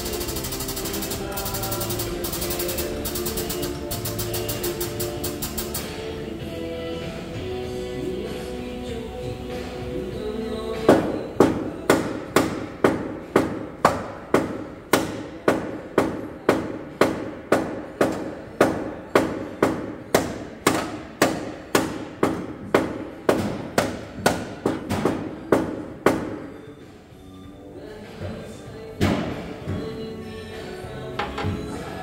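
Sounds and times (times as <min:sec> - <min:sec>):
hammer striking car metal: 0:00.0 - 0:06.1, 0:10.9 - 0:26.5.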